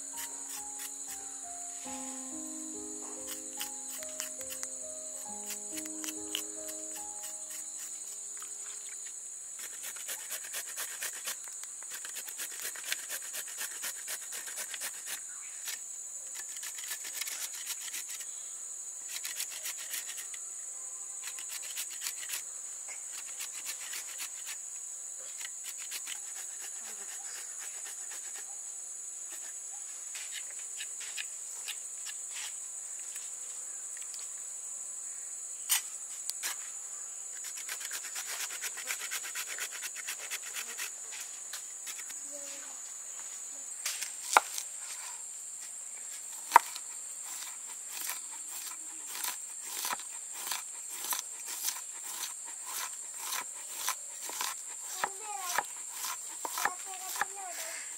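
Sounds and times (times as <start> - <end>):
crickets chirping: 0.0 - 57.9
sweet potato rasping on grater: 9.6 - 15.2, 46.5 - 57.3.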